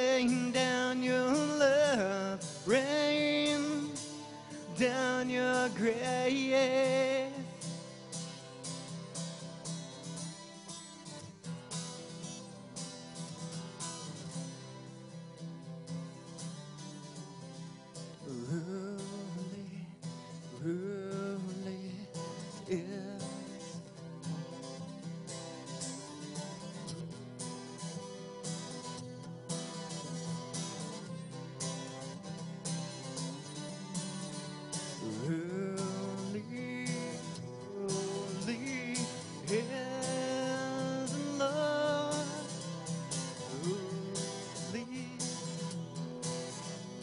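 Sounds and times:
man singing: 0.0 - 8.2, 18.1 - 24.5, 34.7 - 47.0
strummed acoustic guitar: 0.0 - 47.0.

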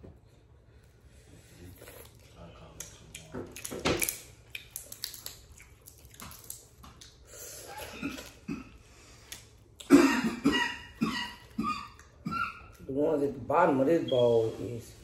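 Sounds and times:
sucking and chewing: 0.8 - 9.9
shells cracking and snapping: 3.5 - 7.2.

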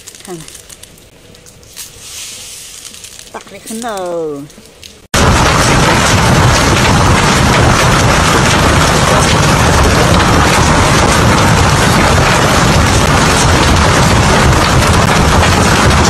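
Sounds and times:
deep rumble: 5.1 - 16.0
hail and rain pelting ground: 5.2 - 16.0.

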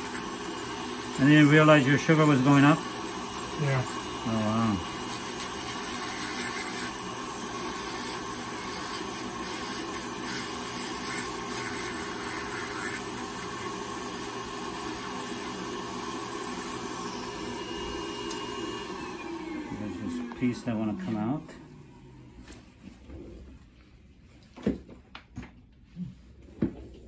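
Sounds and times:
burr grinding toenail: 0.0 - 16.8
nail drill whining: 0.0 - 20.8
dust extraction vacuum: 0.0 - 22.6.

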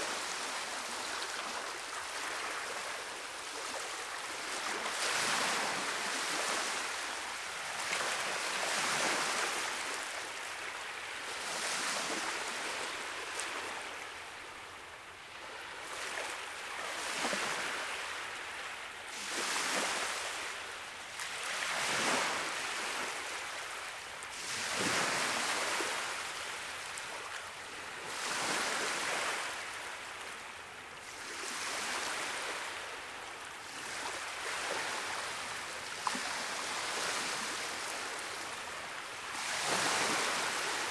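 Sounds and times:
waves breaking: 0.0 - 10.2, 10.8 - 14.0, 21.1 - 30.0, 33.7 - 40.9.

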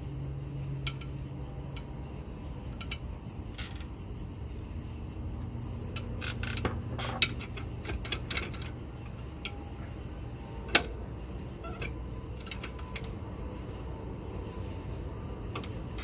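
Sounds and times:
low steady hum: 0.0 - 16.0
small metallic clicks and taps: 0.8 - 1.9, 5.9 - 9.6.

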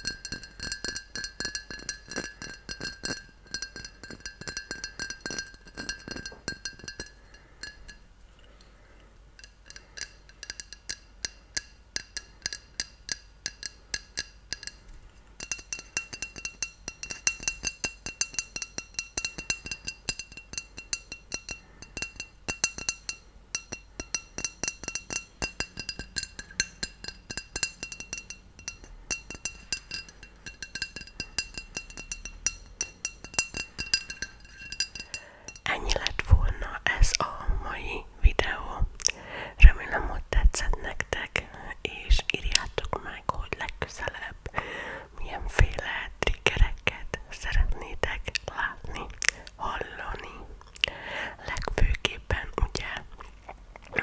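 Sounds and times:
fingernails tapping glass bottle: 0.0 - 8.1, 9.4 - 37.2.

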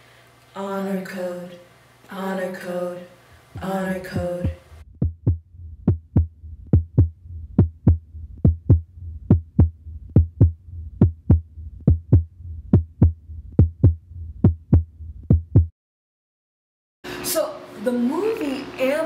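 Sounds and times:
low hum: 3.3 - 15.7
heartbeat thumps: 3.5 - 15.7.

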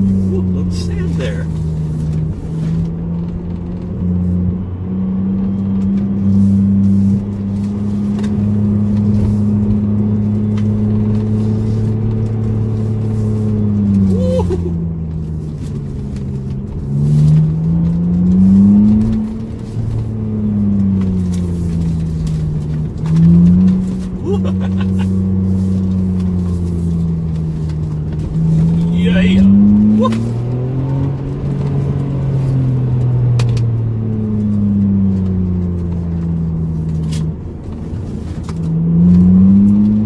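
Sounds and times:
car engine while driving: 0.0 - 40.0.

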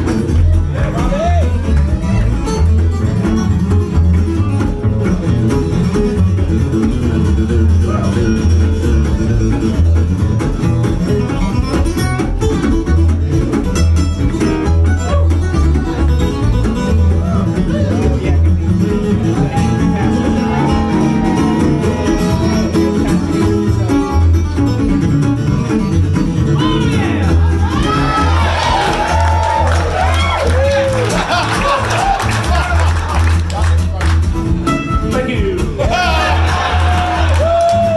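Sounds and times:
strummed acoustic guitar: 0.0 - 30.3
upright bass notes: 0.0 - 37.9.

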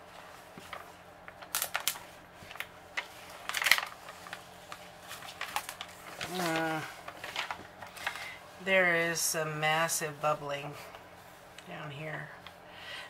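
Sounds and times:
plastic film crinkling: 0.1 - 8.6.

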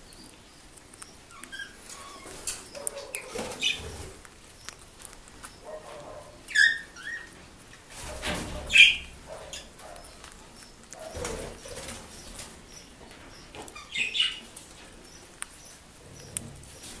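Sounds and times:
parrot beaks clicking and chewing: 0.0 - 7.8, 9.2 - 17.0
parrot squeaks: 1.0 - 4.0, 6.5 - 7.4, 8.6 - 10.2, 13.8 - 14.5.

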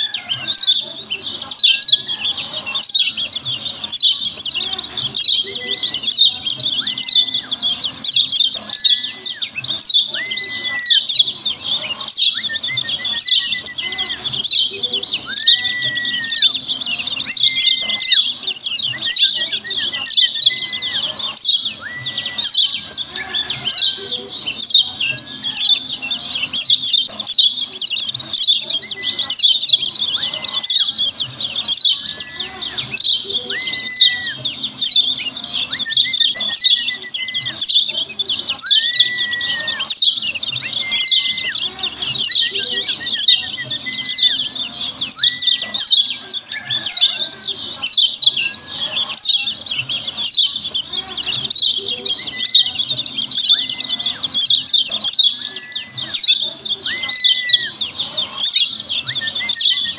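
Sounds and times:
bird chirping rapidly: 0.0 - 59.9
low whistled bird notes: 5.0 - 59.9.

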